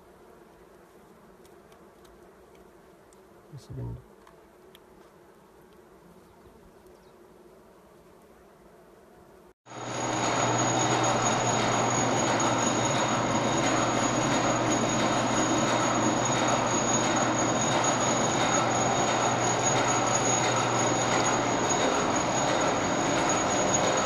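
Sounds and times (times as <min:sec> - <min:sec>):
machine hum with high whine: 0:09.7 - 0:24.0.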